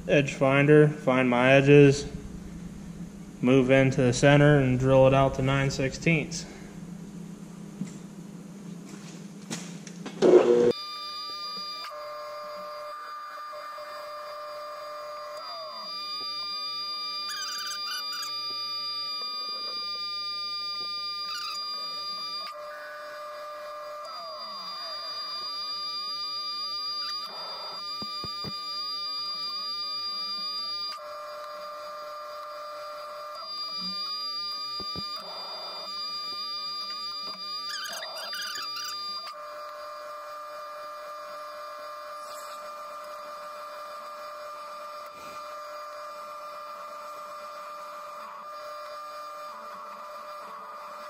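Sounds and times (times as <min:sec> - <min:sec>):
drill boring into metal bar: 0:10.2 - 0:51.0
milling machine whining: 0:10.2 - 0:51.0.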